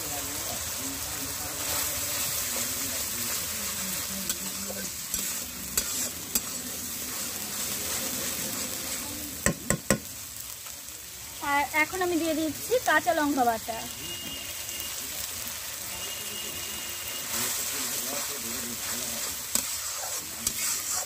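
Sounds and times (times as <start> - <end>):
paste sizzling in hot oil: 0.0 - 21.0
spatula scraping a pan: 1.6 - 9.0, 17.2 - 21.0
sharp knocks on a pan: 9.4 - 10.1.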